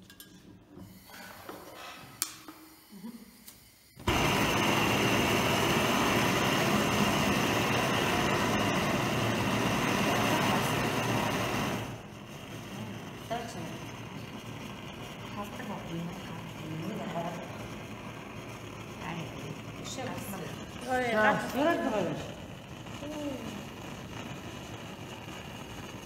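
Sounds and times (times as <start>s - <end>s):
gas torch hissing: 0.7s - 26.0s.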